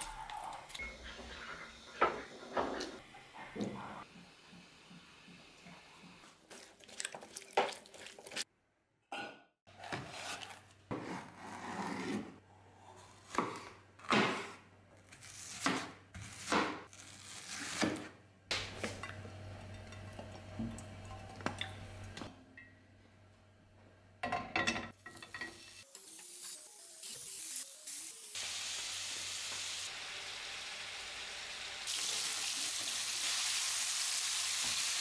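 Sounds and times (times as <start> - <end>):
kitchenware clinking: 24.2 - 25.8.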